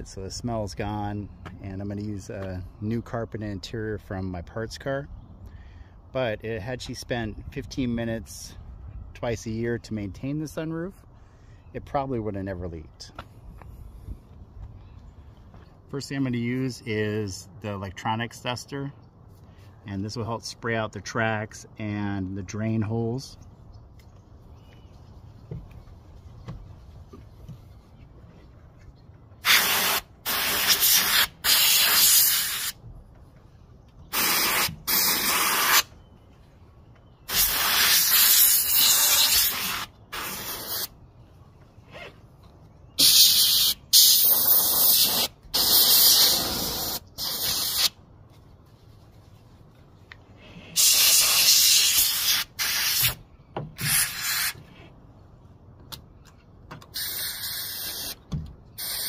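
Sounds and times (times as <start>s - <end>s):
compressed air duster hissing: 29.4s - 32.8s, 34.1s - 35.9s, 37.3s - 40.9s, 43.0s - 48.0s, 50.7s - 53.2s, 53.8s - 54.6s, 56.9s - 58.2s, 58.8s - 59.0s.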